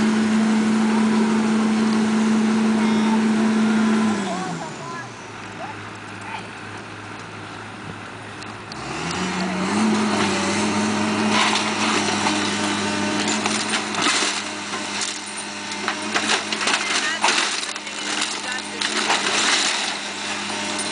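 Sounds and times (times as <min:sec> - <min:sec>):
excavator diesel engine revving: 0:00.0 - 0:20.9
brick masonry breaking: 0:11.2 - 0:20.9
debris crashing and clattering: 0:11.2 - 0:20.9.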